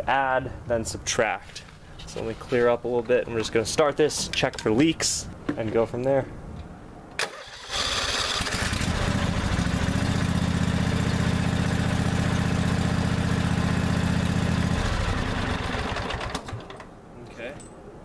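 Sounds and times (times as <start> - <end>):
riding mower engine running: 7.2 - 16.9.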